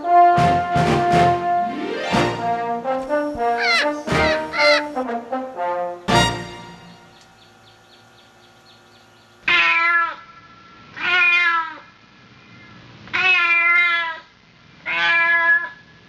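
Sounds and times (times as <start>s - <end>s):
cat meowing: 3.4s - 5.0s, 9.4s - 10.4s, 11.0s - 11.9s, 13.1s - 15.8s.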